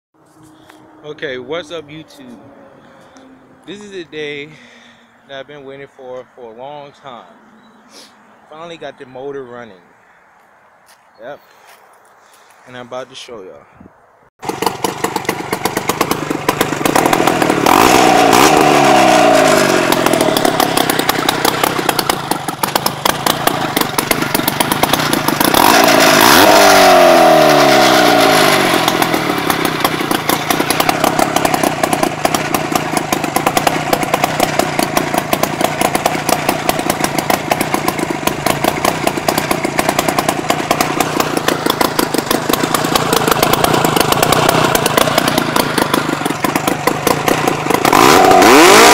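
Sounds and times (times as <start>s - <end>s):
two-stroke engine revving and idling: 14.4s - 48.9s.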